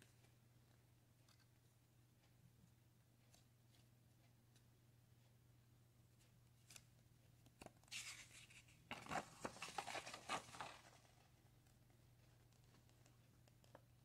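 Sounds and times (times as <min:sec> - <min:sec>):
paper rustling and crinkling: 0:07.8 - 0:11.4.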